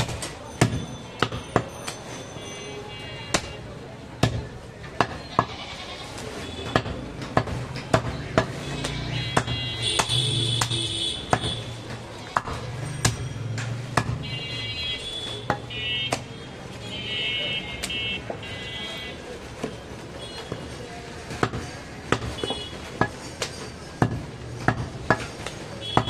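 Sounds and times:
cleaver chopping meat and bone: 0.0s - 2.0s, 3.3s - 3.6s, 4.2s - 5.5s, 6.6s - 14.2s, 15.4s - 16.3s, 21.3s - 26.0s.

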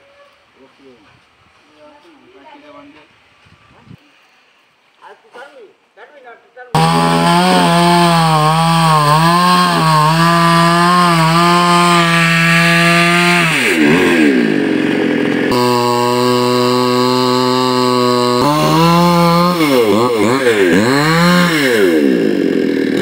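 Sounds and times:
chainsaw cutting wood: 6.8s - 23.0s.

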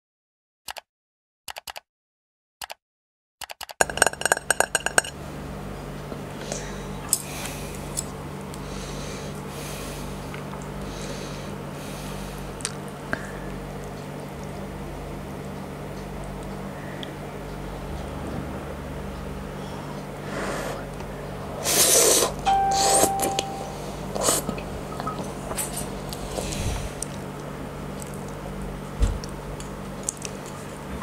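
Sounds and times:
sharp clicks: 1.5s - 1.8s, 3.4s - 4.0s
low room hum: 4.0s - 31.0s
ringing chiming clicks: 22.4s - 24.2s.

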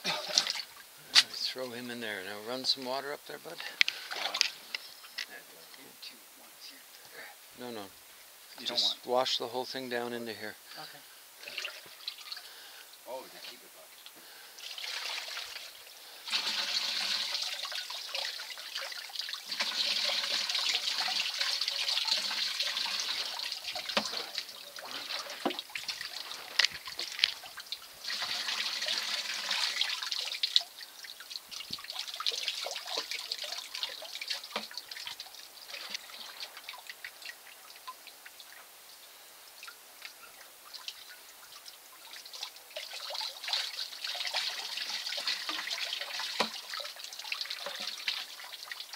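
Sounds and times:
water pouring and splashing: 0.0s - 5.4s, 11.4s - 38.7s, 39.6s - 48.9s
water trickling and dripping: 0.1s - 48.9s.

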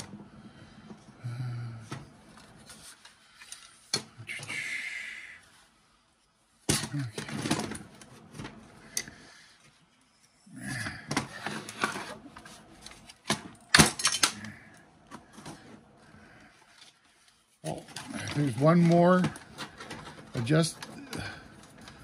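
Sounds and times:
saw parts clattering and clicking: 12.8s - 14.5s.

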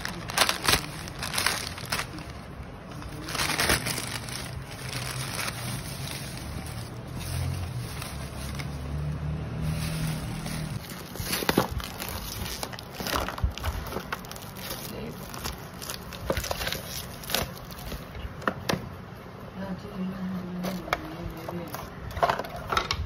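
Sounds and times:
plastic wrap crinkling: 0.0s - 18.3s.

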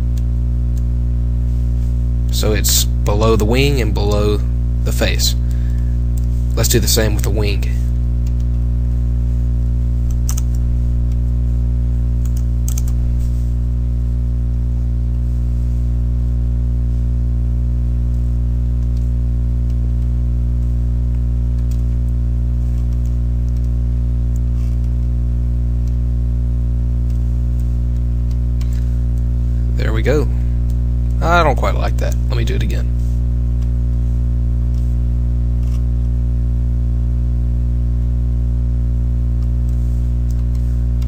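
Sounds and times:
electrical mains hum: 0.0s - 41.0s
mouse and keyboard clicks: 12.2s - 13.0s, 35.6s - 35.8s.

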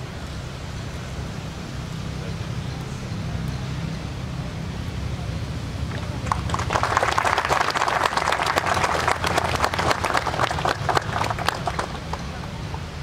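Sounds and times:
audience applause: 5.9s - 12.7s.

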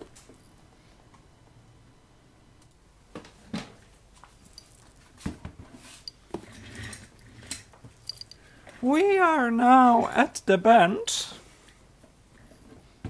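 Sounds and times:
objects knocking and clicking: 4.4s - 5.0s, 6.1s - 8.4s.

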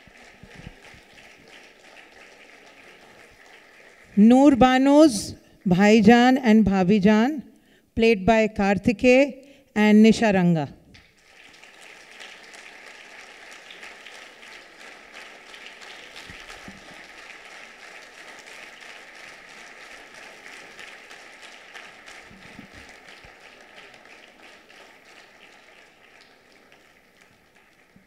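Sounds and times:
audience applauding: 0.0s - 4.6s, 11.0s - 28.0s.

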